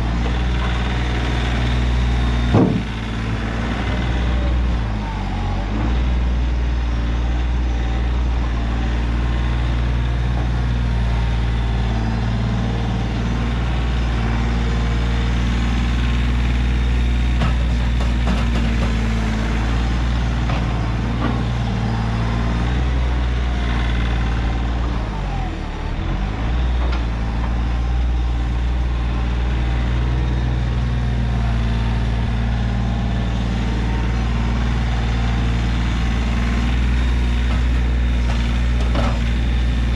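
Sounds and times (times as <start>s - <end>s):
tractor diesel engine running: 0.0s - 39.9s
knocks: 2.4s - 3.0s.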